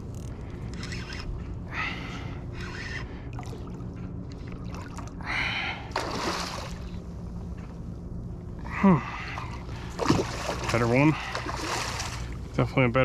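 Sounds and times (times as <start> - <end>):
fishing reel whirring: 0.1 - 1.3.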